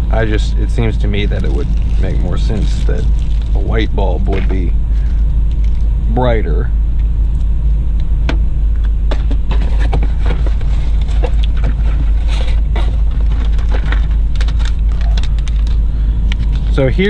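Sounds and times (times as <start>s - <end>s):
steady low rumble: 0.0s - 17.0s
plastic packaging crinkling: 1.1s - 5.9s, 9.6s - 15.8s.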